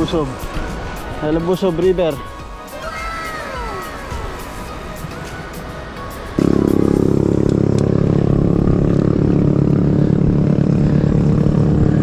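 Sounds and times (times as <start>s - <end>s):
vehicle engine low drone: 4.7s - 12.0s.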